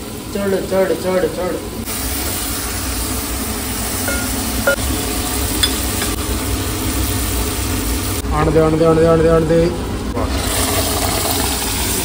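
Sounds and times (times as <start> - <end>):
ladle clicking against pot: 5.6 - 6.2.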